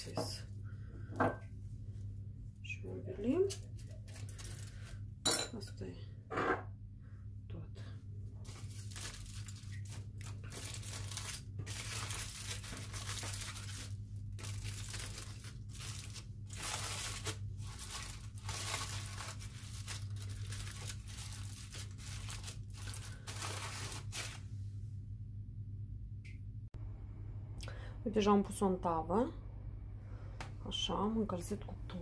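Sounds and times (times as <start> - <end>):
steady low hum: 0.0 - 32.0
aluminium foil crinkling: 3.4 - 5.0, 8.4 - 24.5.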